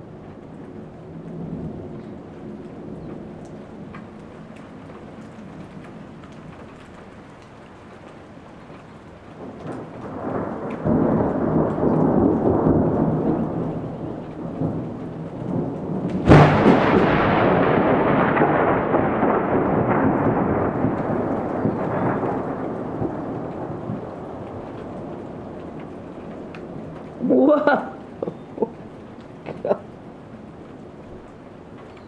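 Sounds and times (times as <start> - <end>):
raindrops ticking: 0.0 - 32.0
thunder rumbling: 0.0 - 32.0
sharp thunder crack: 9.4 - 25.5.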